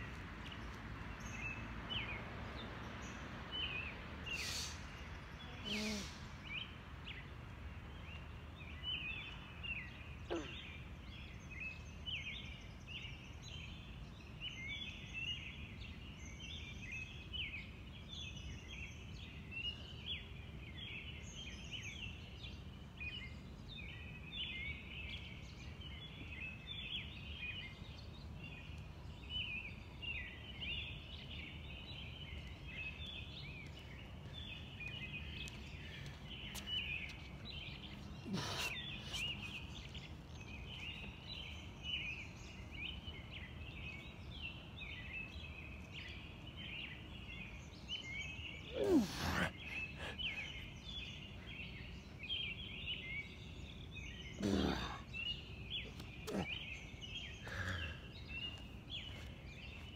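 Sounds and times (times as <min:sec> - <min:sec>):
man grunting exhale: 0:48.7 - 0:50.5, 0:54.4 - 0:55.0, 0:57.4 - 0:58.0.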